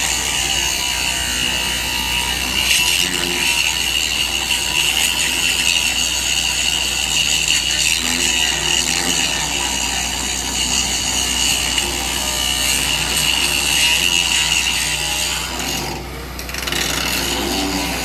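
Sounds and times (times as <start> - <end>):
welding arc hissing and crackling: 0.0 - 15.8.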